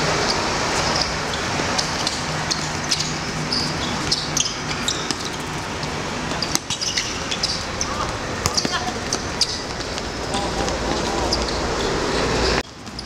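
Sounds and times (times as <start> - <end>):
shoes squeaking on court: 0.0 - 13.0
ball being kicked: 8.0 - 11.6.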